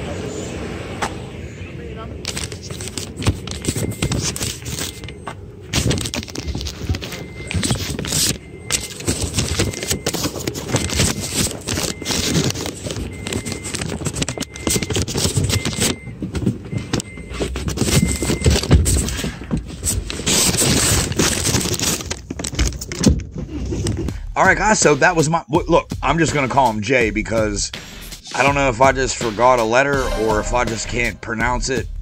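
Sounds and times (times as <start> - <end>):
scraping and rustling: 2.2 - 24.1.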